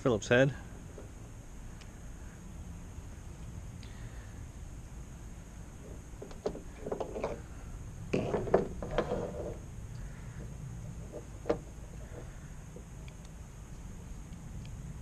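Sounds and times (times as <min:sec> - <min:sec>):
low wind rumble: 0:00.0 - 0:15.0
clattering and rustling: 0:05.8 - 0:07.5, 0:08.1 - 0:09.6, 0:10.3 - 0:12.8.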